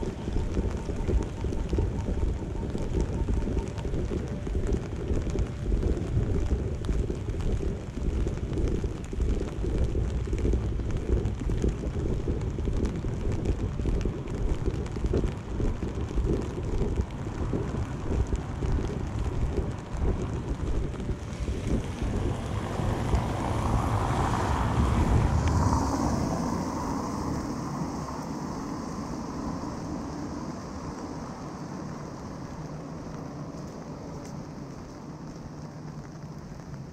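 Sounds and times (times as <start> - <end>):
wind buffeting microphone: 0.0 - 36.9
car tyres hissing on wet road: 9.9 - 36.9.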